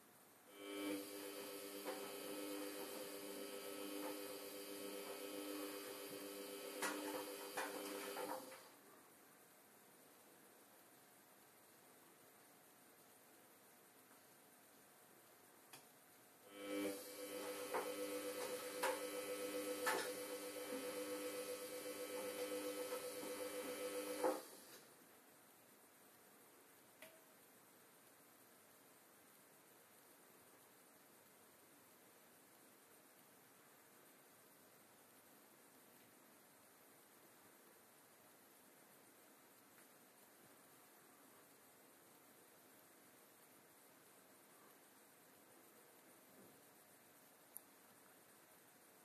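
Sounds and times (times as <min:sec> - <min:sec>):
washing machine humming: 0:01.0 - 0:08.6, 0:16.5 - 0:24.6.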